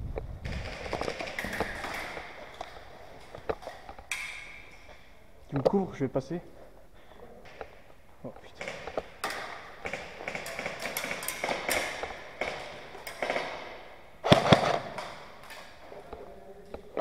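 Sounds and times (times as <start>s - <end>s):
airsoft guns firing: 0.4s - 4.7s, 8.6s - 15.8s.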